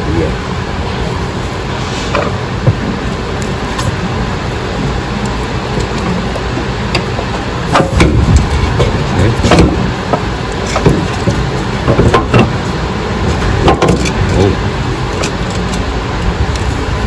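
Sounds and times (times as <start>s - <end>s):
steady background rush: 0.0s - 17.0s
metal knocks and clatters: 5.8s - 12.6s.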